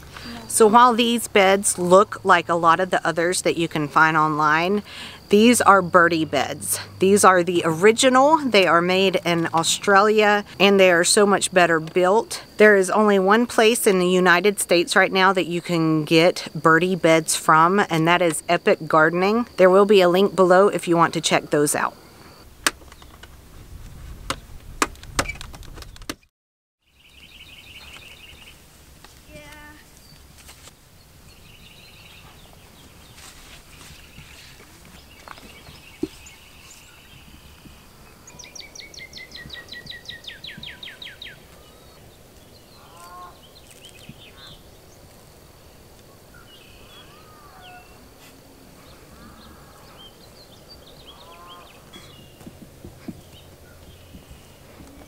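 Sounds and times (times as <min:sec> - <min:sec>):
small birds chirping: 0:26.8 - 0:28.6, 0:29.2 - 0:45.2, 0:46.0 - 0:55.0.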